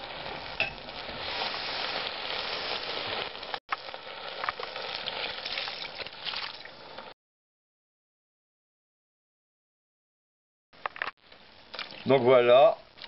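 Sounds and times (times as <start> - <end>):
food sizzling in a pot: 0.0 - 7.1.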